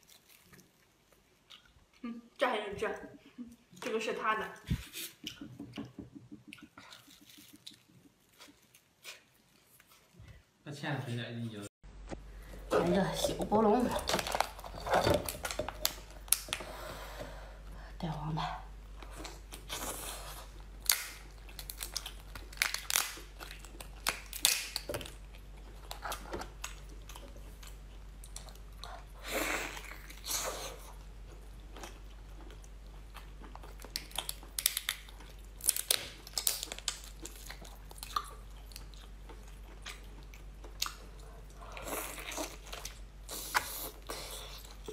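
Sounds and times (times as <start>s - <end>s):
chewing and mouth sounds: 0.0s - 2.1s, 4.6s - 10.2s, 18.9s - 44.9s
lobster shell cracking: 20.8s - 25.3s, 33.9s - 38.1s.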